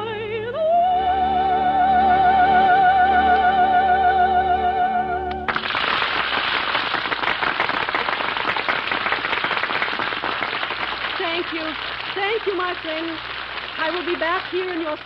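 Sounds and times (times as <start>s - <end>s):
audience applause: 5.5s - 15.0s.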